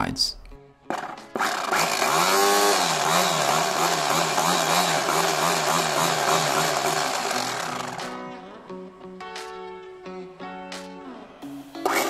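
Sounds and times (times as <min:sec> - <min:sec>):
electric motor pump whirring: 0:00.9 - 0:08.2.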